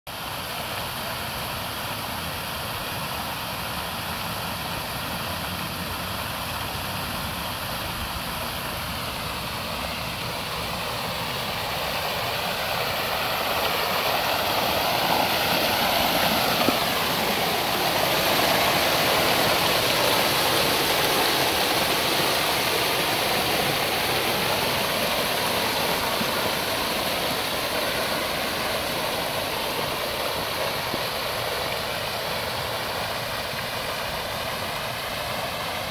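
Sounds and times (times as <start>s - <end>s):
fountain water splashing into basin: 0.1s - 35.9s.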